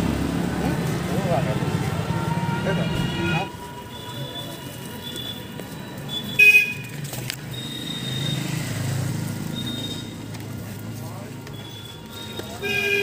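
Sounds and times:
vehicle engine rumble: 0.0 - 13.0
vehicle horn toot: 2.1 - 6.9, 11.6 - 13.0.

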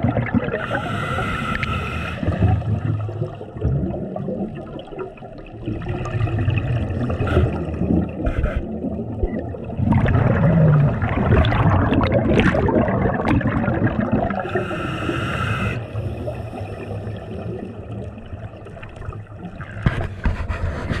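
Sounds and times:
exhaled bubbles underwater: 0.0 - 20.0
hissing regulator inhale: 0.6 - 2.4, 7.2 - 8.7, 14.4 - 17.4.

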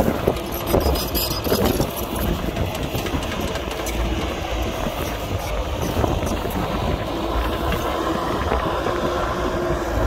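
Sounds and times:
heavy diesel engine rumbling: 0.0 - 10.0.

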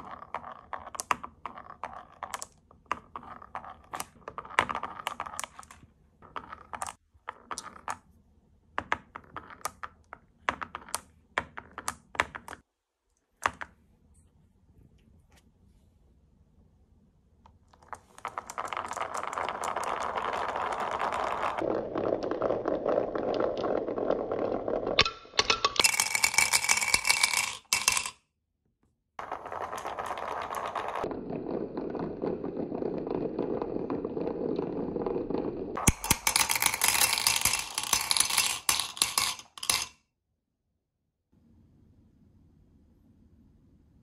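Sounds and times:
marbles rolling down wooden track: 0.0 - 8.0, 8.8 - 11.0, 17.8 - 28.2, 29.2 - 40.0
marbles clinking into a cup: 17.9 - 28.2, 29.2 - 39.9.

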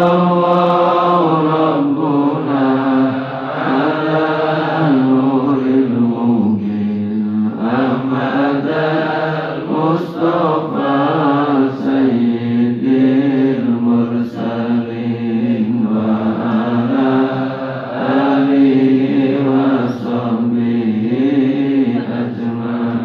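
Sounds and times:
devotional chanting: 0.0 - 23.0.

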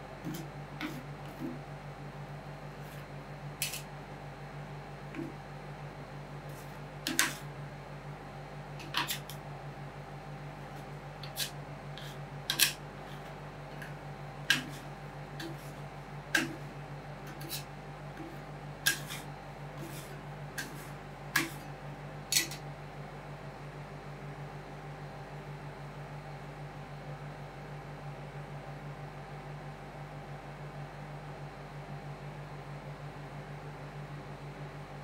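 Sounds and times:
low machine hum: 0.0 - 35.0
metal spatulas clicking on plate: 22.3 - 22.6.

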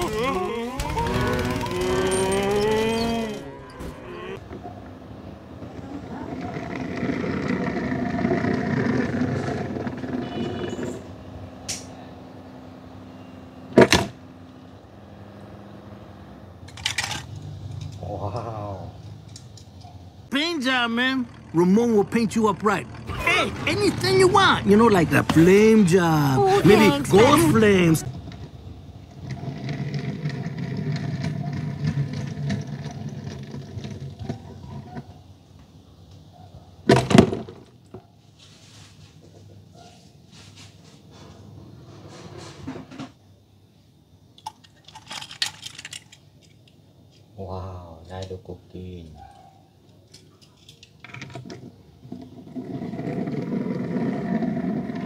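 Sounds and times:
toy car wheels rumbling on plastic: 0.0 - 3.4, 6.0 - 10.5, 29.1 - 35.0, 51.0 - 55.0.

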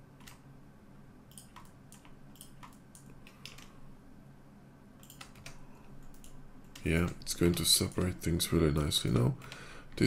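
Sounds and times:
steady low hum: 0.0 - 10.0
keyboard and mouse clicks: 0.2 - 0.4, 1.3 - 3.8, 5.0 - 8.3.

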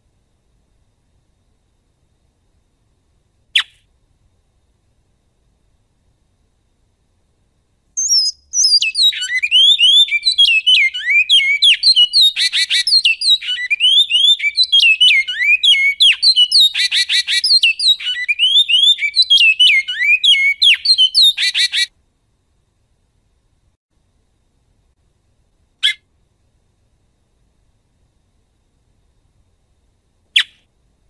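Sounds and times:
finch singing whistled notes: 8.0 - 21.9, 30.4 - 30.7.

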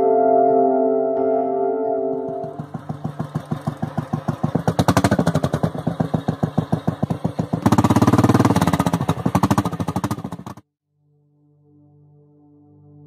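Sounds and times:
motorcycle engine running: 2.1 - 10.7.

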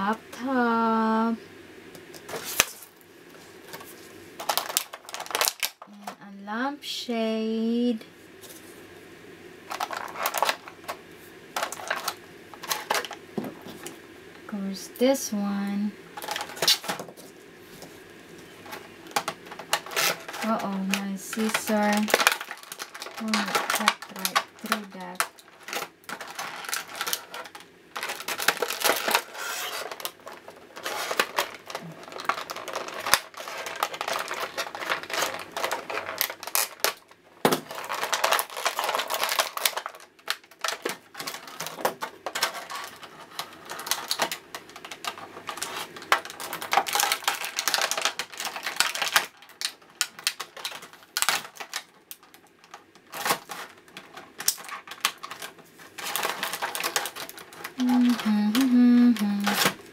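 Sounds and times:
plastic packaging crinkling: 2.0 - 6.2, 9.6 - 14.0, 16.1 - 59.9
scissors cutting plastic: 19.1 - 59.8.

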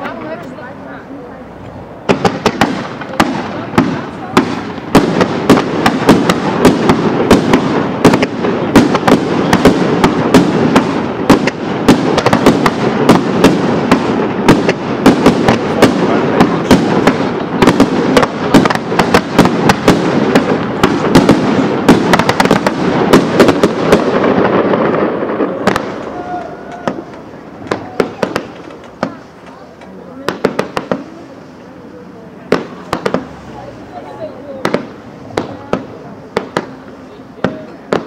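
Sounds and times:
fireworks bangs: 0.0 - 38.0
fireworks rumble: 0.0 - 38.0.

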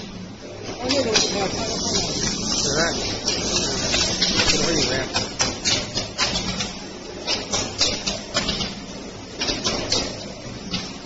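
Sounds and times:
low machine hum: 0.0 - 11.0
sharp hissing welding crackles: 0.9 - 6.7.

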